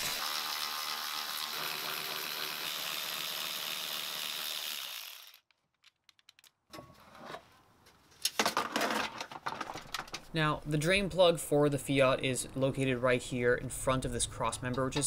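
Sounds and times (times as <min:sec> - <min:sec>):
electric ratchet running: 0:00.0 - 0:05.5.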